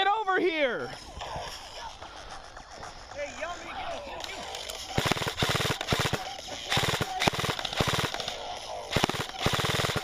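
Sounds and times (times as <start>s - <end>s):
airsoft rifle bursts: 4.5s - 10.0s.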